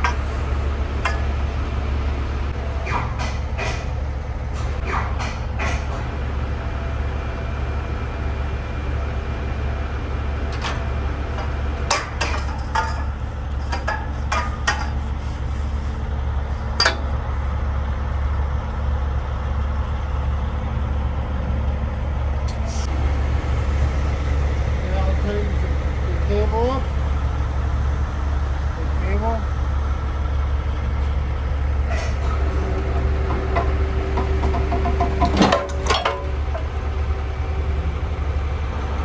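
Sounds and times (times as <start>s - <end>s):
diesel engine idling: 0.0s - 39.0s
metal clanks and rattles: 1.0s - 1.4s, 10.5s - 15.2s, 16.7s - 17.2s, 31.9s - 36.8s.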